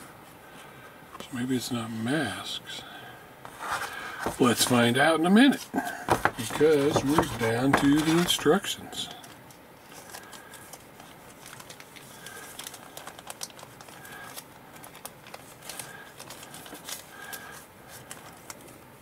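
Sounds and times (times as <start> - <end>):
plastic bag crinkling: 5.8 - 18.8.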